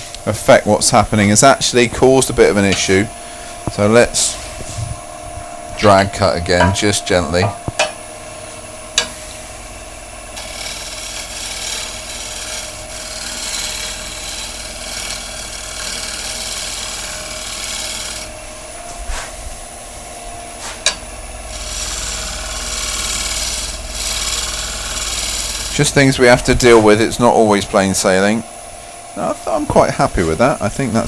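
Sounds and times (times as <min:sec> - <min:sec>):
gouge scraping spinning wood: 0:09.2 - 0:19.3, 0:20.6 - 0:27.7.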